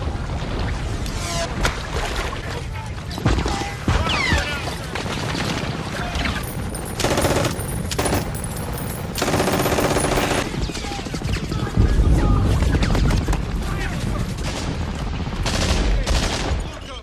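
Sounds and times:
low rumble of battle: 0.0s - 17.0s
rapid machine-gun fire: 5.0s - 16.8s.

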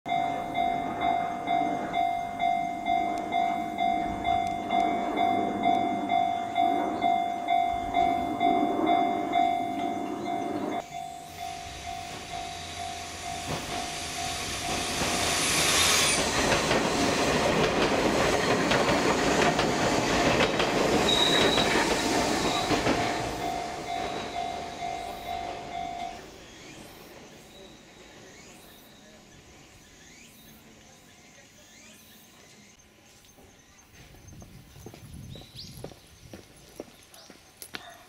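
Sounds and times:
level-crossing warning bell: 0.1s - 16.8s, 18.1s - 29.3s
train wheels clattering: 1.9s - 26.3s
high wheel squeal: 8.2s - 17.2s, 21.0s - 26.8s.

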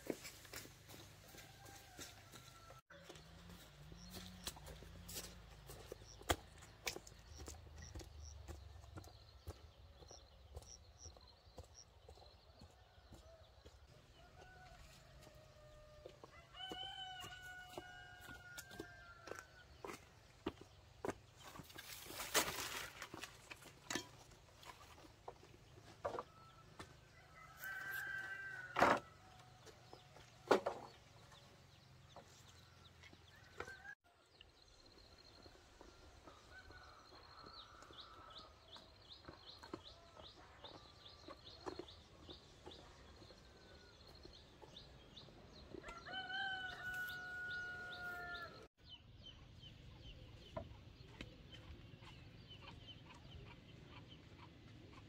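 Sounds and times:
rooster crowing: 1.3s - 2.8s, 14.3s - 19.4s, 27.3s - 29.1s, 45.9s - 48.7s.

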